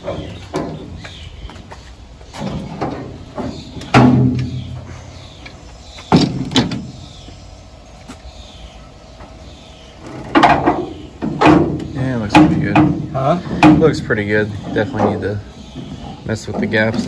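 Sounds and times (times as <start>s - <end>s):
metal door thumping shut: 2.4s - 4.8s, 6.1s - 7.0s, 10.2s - 14.0s.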